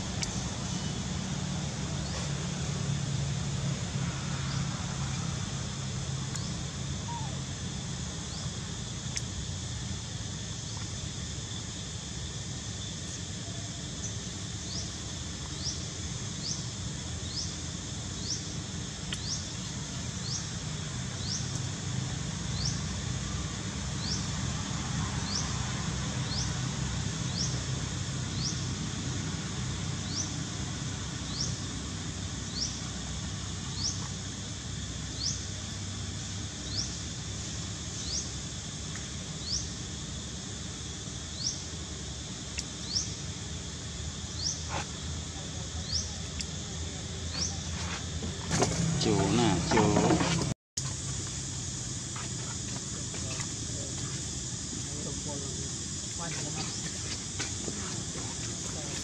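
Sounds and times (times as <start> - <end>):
low outdoor rumble: 0.0 - 59.0
animal chirping: 7.1 - 7.4.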